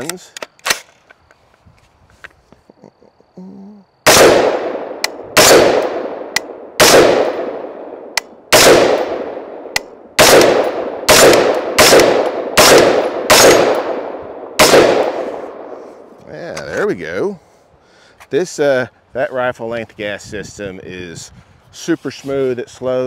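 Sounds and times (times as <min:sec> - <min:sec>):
rifle shots: 0:04.0 - 0:15.8.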